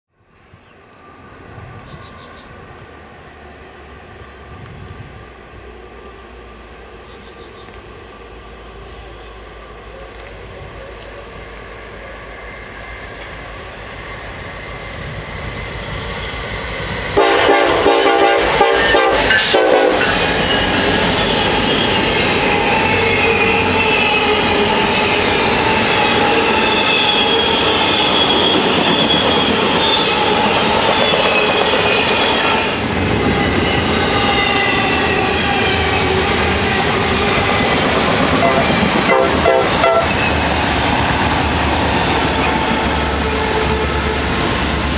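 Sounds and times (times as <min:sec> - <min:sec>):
low rumble of locomotives: 0:00.2 - 0:44.9
train rumble and clatter: 0:00.4 - 0:44.9
locomotive air horns blasting: 0:17.2 - 0:37.7, 0:38.3 - 0:40.4
wheel squeal: 0:20.0 - 0:38.9.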